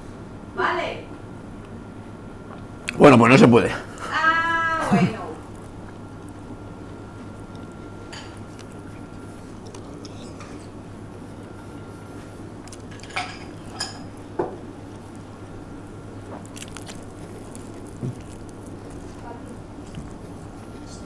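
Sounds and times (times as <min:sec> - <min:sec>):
low room hum: 0:00.0 - 0:21.0
man biting and chewing: 0:05.4 - 0:21.0.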